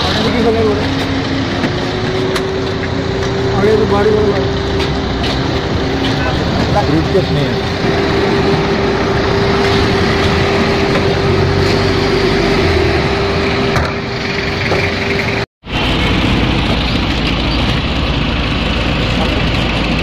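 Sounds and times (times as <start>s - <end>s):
roadside traffic: 0.0s - 20.0s
steady hum: 0.0s - 20.0s.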